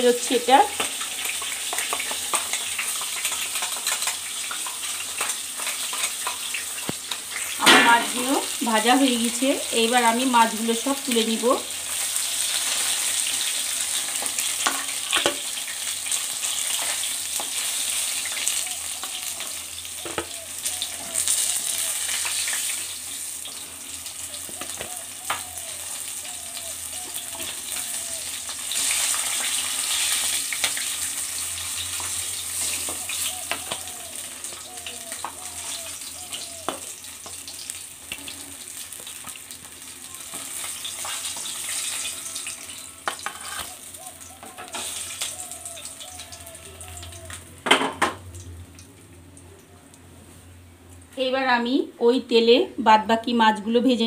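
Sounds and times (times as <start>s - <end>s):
fish sizzling in hot oil: 0.0s - 49.0s
spatula knocking and scraping pan: 43.0s - 43.7s.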